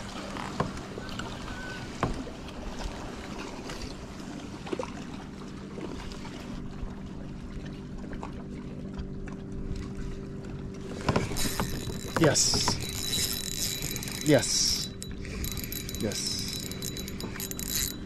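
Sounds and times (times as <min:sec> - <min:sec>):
water lapping against hull: 0:00.0 - 0:18.0
steady low hum: 0:05.0 - 0:18.0
fishing reel clicks and knocks: 0:11.0 - 0:18.0.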